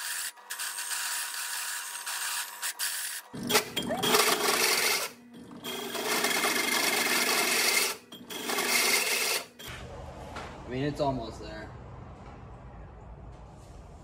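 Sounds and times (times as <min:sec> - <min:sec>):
hole saw grinding into metal: 0:00.0 - 0:09.7.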